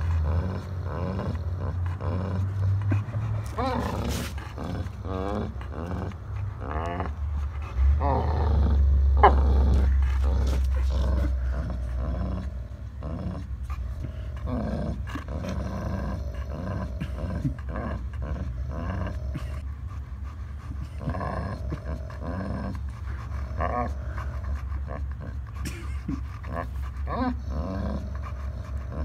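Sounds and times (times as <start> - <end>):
dogs growling: 0.0 - 29.0.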